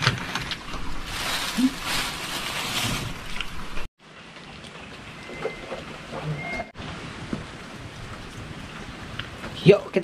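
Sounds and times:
plastic bag crinkling: 0.8 - 3.9
steady rain: 6.8 - 10.0.

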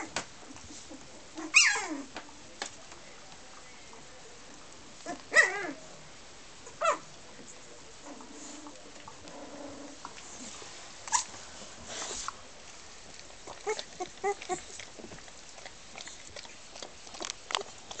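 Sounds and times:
puppies squeaking and whimpering: 1.4 - 2.0, 13.5 - 14.8
rustling and scratching on bedding: 8.0 - 18.0.

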